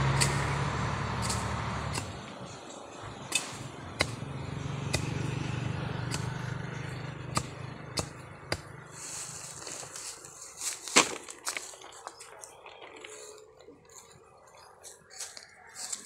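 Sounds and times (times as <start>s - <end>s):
low engine hum: 0.0s - 10.4s
machete chopping bamboo: 0.1s - 0.5s, 1.2s - 2.2s, 3.3s - 5.4s, 6.0s - 8.8s
dry leaves rustling underfoot: 8.7s - 16.0s.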